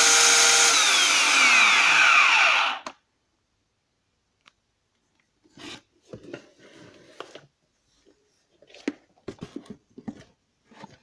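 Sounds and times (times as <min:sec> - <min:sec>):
plastic rustles and scrapes: 0:05.4 - 0:11.0.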